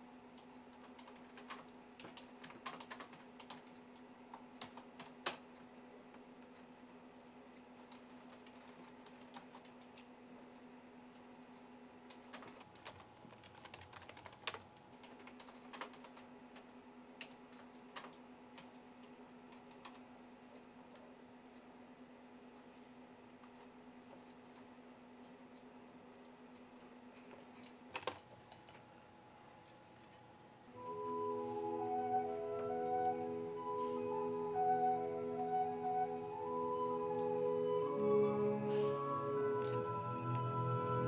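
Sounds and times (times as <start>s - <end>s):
faint steady hum: 0.0s - 41.0s
keyboard typing: 0.3s - 5.5s, 7.6s - 10.1s, 12.1s - 20.1s.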